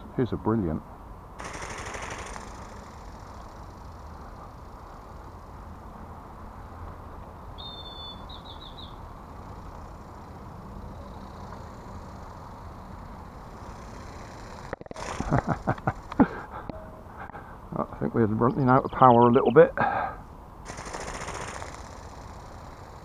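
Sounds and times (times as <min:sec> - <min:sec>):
open-air background noise: 0:00.0 - 0:23.0
bird whistle and trill: 0:07.6 - 0:09.0.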